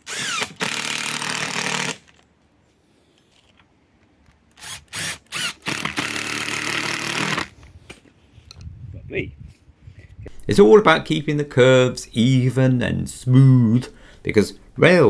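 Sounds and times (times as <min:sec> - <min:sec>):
cordless drill running: 0:00.0 - 0:02.0, 0:04.6 - 0:07.6.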